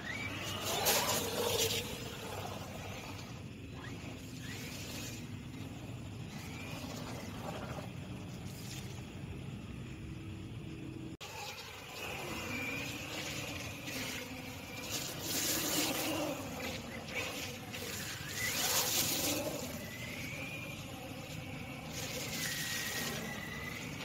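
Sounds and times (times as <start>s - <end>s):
electric motor whining: 11.2s - 24.0s
tyres splashing through water: 11.2s - 24.0s.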